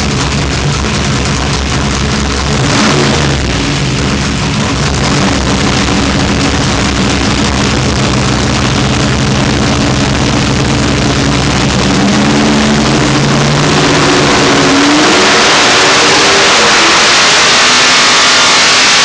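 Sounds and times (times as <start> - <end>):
race engine revving: 0.0 - 19.0.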